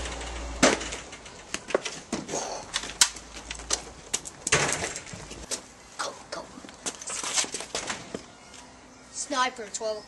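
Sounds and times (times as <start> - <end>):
footsteps on paved path: 6.6 - 8.7.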